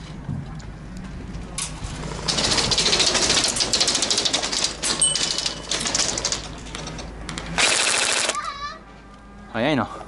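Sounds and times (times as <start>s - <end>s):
airsoft guns firing bursts: 7.6s - 8.4s.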